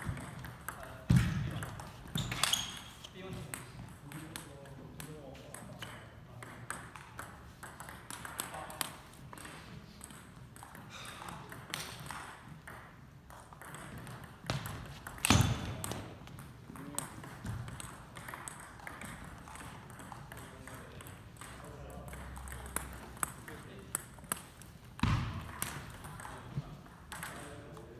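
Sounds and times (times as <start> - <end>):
table tennis ball clicking: 3.5 - 10.8, 11.5 - 24.7.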